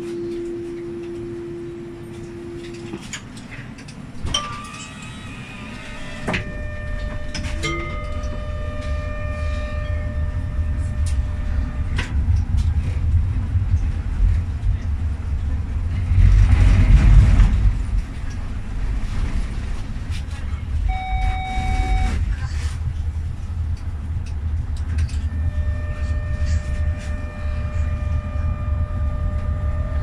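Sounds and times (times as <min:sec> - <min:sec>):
tram beep: 0:00.0 - 0:13.6, 0:20.7 - 0:22.8, 0:24.2 - 0:30.0
tram rumbling pulling away: 0:00.0 - 0:30.0
chiming tones: 0:06.4 - 0:11.2.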